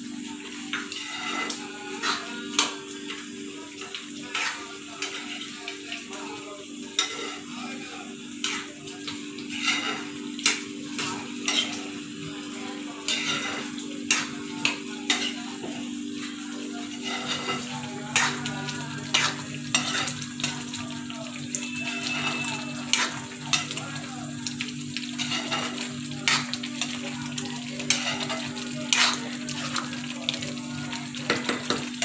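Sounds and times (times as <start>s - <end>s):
curry sizzling: 0.0s - 32.0s
spatula scraping pan: 0.7s - 2.8s, 4.2s - 5.6s, 6.9s - 8.8s, 9.4s - 12.0s, 13.0s - 20.6s, 21.6s - 23.8s, 25.0s - 27.1s, 27.8s - 29.9s.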